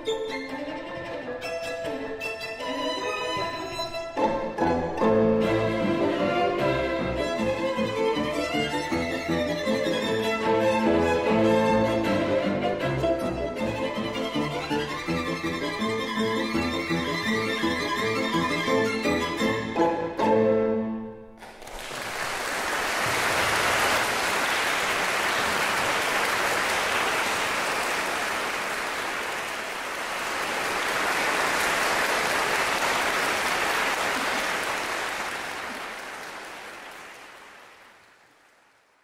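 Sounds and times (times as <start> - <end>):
audience applauding: 21.4 - 39.0.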